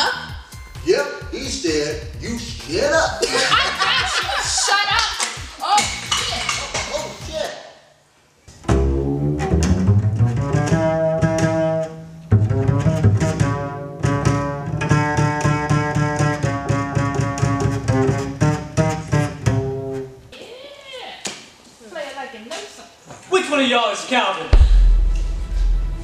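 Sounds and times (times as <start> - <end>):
double bass plucked: 8.6 - 20.2, 24.6 - 26.0.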